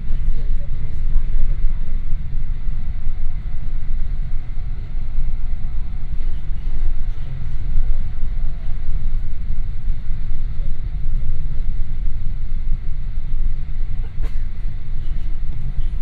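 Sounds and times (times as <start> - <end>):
train rumbling on track: 0.0 - 16.0.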